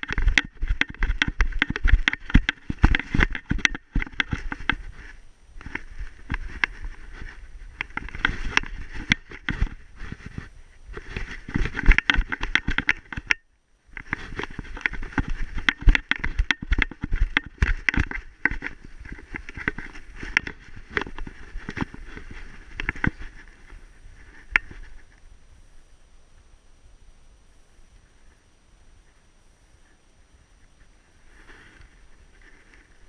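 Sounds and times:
paws crunching in snow: 0.0 - 12.9, 14.0 - 25.1.

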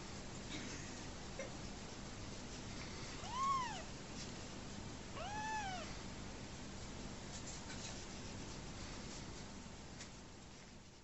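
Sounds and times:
kitten mewing: 3.2 - 3.9, 5.2 - 6.0.

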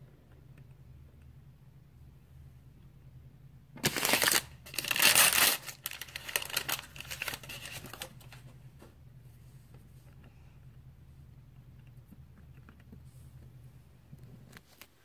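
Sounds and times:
plastic packet crinkling: 3.8 - 8.4.

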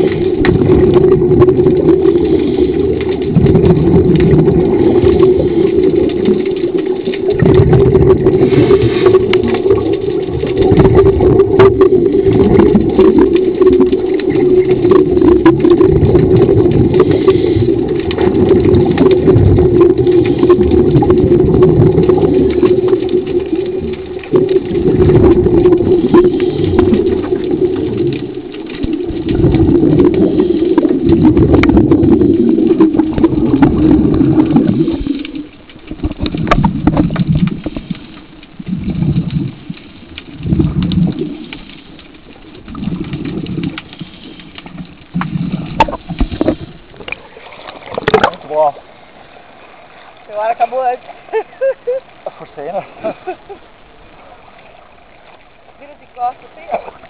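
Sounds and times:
low rumble of water: 0.0 - 57.0.

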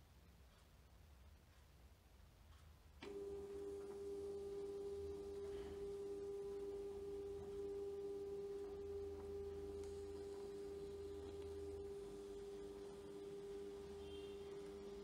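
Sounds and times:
printer motor whining: 3.0 - 15.0.

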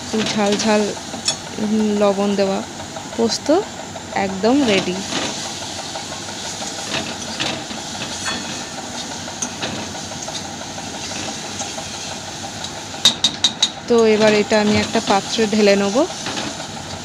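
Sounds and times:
food hissing in a wok: 4.8 - 8.2, 14.8 - 16.5.

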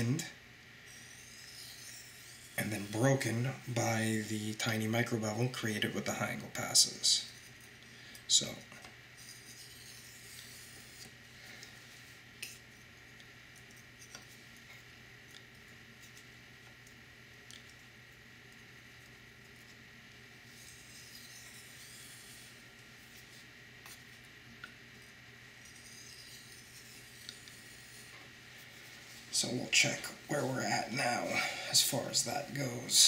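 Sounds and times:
knife blade scraping on whetstone: 0.9 - 4.2, 9.2 - 11.1, 20.5 - 22.6, 25.6 - 28.2.

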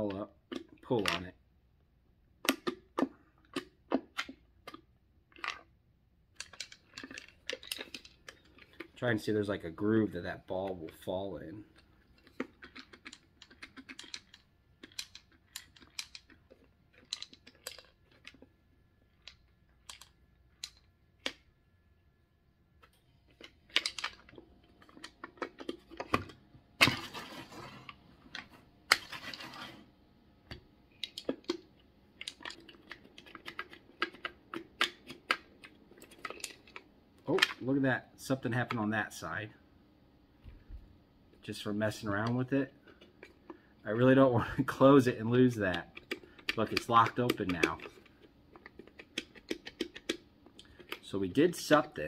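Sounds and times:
wooden puzzle box clicks and knocks: 45.7 - 51.0.

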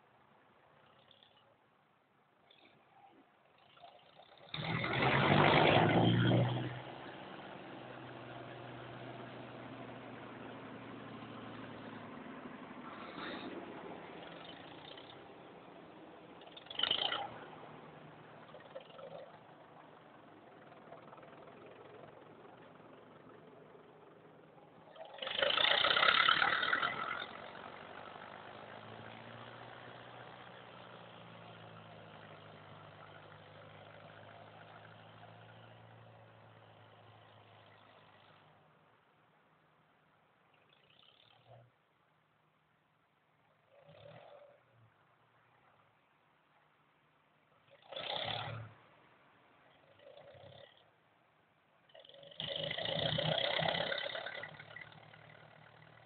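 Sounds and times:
old engine idling: 7.2 - 35.3, 51.9 - 56.0.

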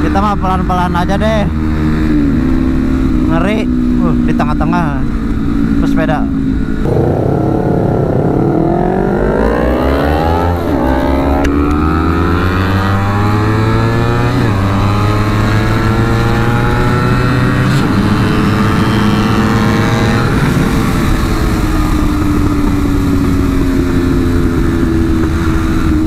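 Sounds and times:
motorcycle engine accelerating: 6.4 - 26.0
wind rush: 6.6 - 13.6, 14.5 - 26.0.

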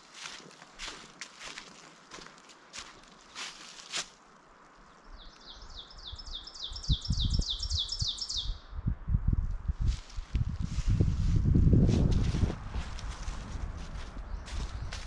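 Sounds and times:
songbird trilling: 5.1 - 8.6.

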